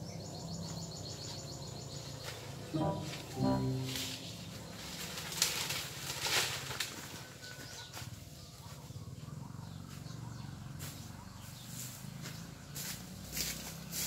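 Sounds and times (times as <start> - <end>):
leaves and twigs rustling: 2.2 - 8.8, 10.8 - 14.0.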